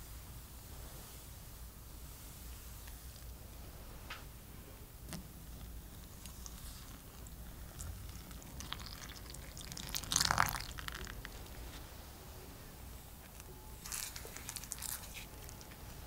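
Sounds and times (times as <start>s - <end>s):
milk pouring into a bowl: 6.2s - 11.3s.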